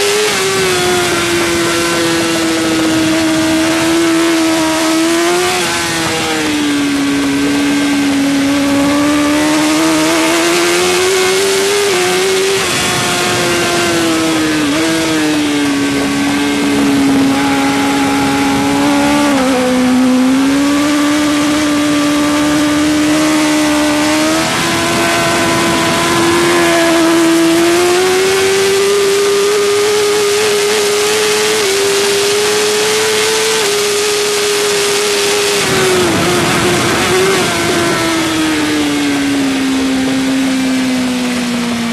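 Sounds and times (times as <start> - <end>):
motorcycle engine at high revs: 0.0 - 41.9
wind rushing: 0.4 - 28.8.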